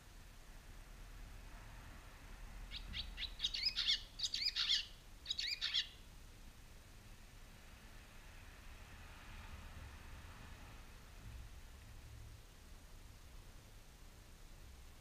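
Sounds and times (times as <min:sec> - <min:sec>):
swallow sharp chirps: 0:02.7 - 0:06.0.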